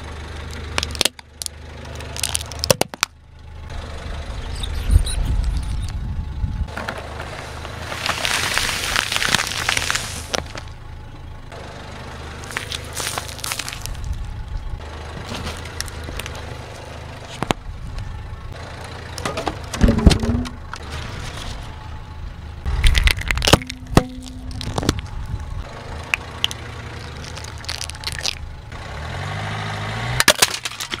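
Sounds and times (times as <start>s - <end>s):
car engine idling: 0.0s - 31.0s
tyre crushing cupcakes: 12.5s - 14.1s, 22.7s - 25.0s, 26.4s - 28.4s.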